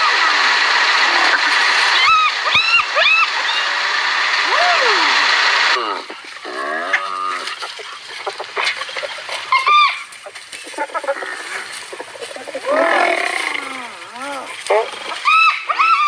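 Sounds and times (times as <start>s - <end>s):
hyenas calling: 5.8s - 16.0s.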